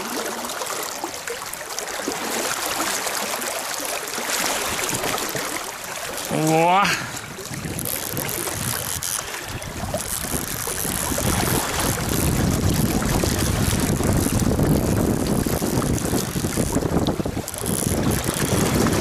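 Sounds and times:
wind buffeting microphone: 6.2 - 19.0.

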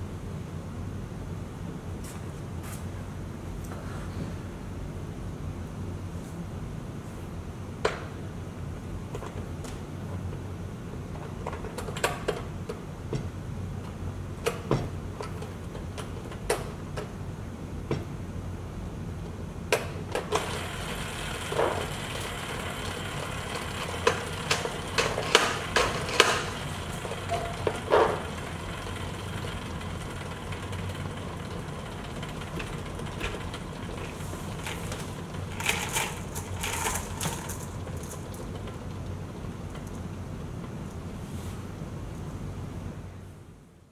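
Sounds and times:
low background hum: 0.0 - 43.9
plastic parts clicking and rattling: 21.4 - 40.0.

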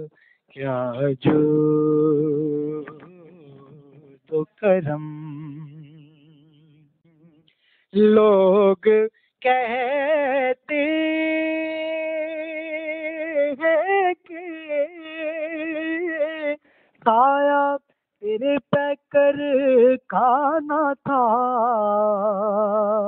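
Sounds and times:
person singing devotional song: 0.0 - 23.0.

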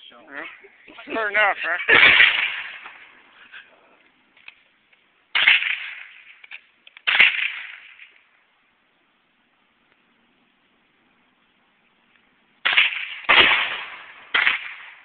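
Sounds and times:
gunshots echoing: 1.8 - 3.1, 5.3 - 6.3, 7.0 - 8.1, 12.6 - 15.0.

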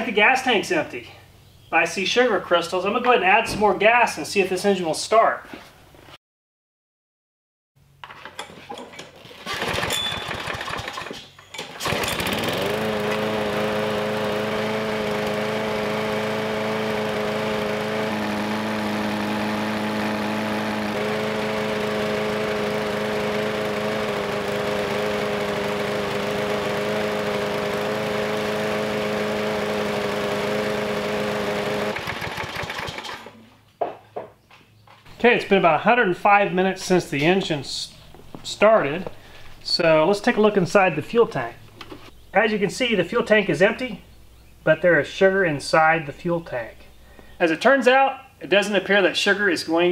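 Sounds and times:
lawn mower engine running: 8.0 - 33.5
lawn mower pull-start: 8.0 - 33.5.

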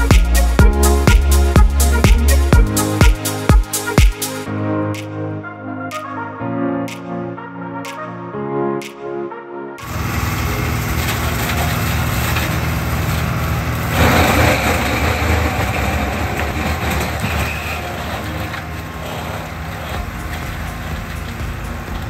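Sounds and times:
flail mulcher shredding brush: 9.9 - 21.9
tractor engine under load: 9.9 - 22.0.

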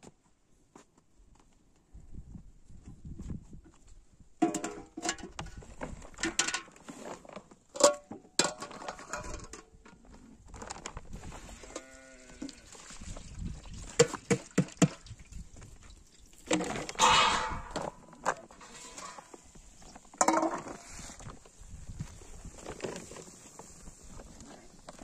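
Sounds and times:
sharp knocks and clatter: 13.9 - 15.1.

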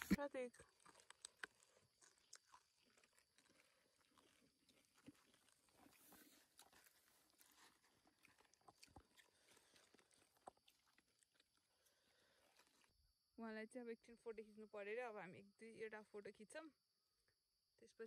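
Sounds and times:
people crunching snacks: 0.0 - 12.9.

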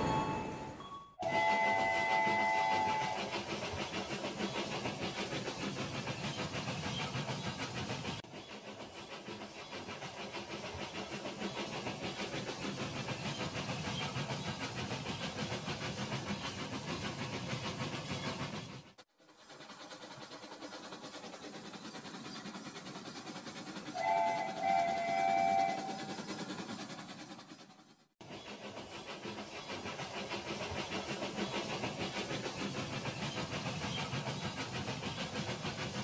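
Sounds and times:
toy locomotive electronic horn: 1.2 - 3.2, 24.0 - 26.0
toy train motors and wheels rattling: 1.8 - 36.0.

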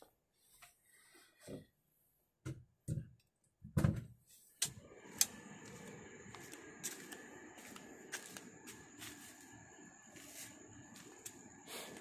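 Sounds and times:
steady low rumble: 4.7 - 12.0.

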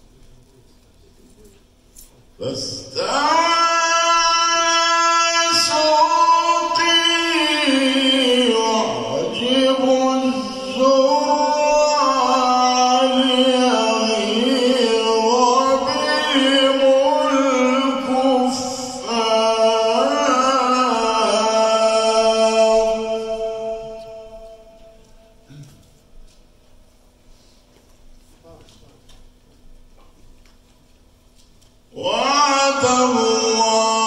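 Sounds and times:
man chanting melodically: 2.3 - 25.7, 31.9 - 34.0.

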